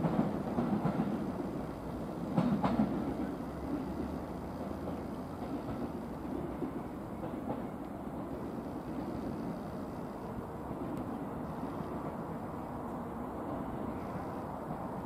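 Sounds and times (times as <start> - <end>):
wheels clicking over rail joints: 0.0 - 12.2
train rumbling slowly: 0.0 - 15.0.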